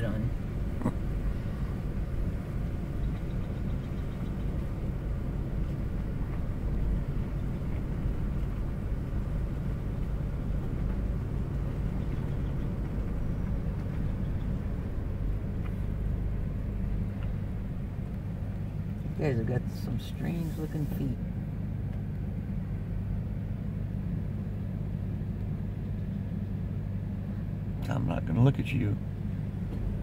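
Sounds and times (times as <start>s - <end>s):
car engine and tyres rumbling: 0.0s - 30.0s.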